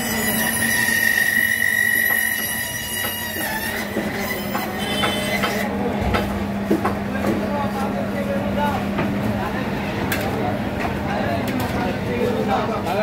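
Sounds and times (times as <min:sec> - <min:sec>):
band saw whining: 0:00.0 - 0:05.8.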